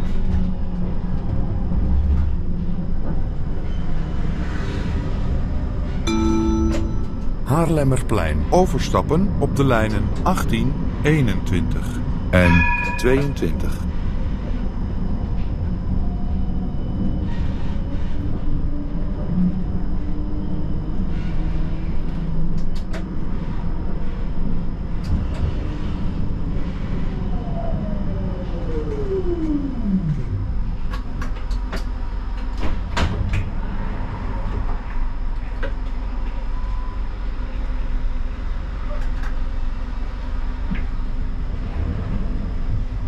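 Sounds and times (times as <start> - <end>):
tram rumbling: 0.9 - 14.6.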